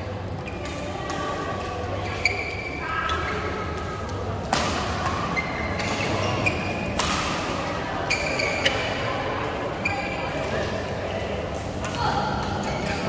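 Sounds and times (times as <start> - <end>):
murmur of voices: 0.0 - 13.0
shoes squeaking on court: 0.2 - 10.9
badminton racket hitting shuttlecock: 7.0 - 7.6.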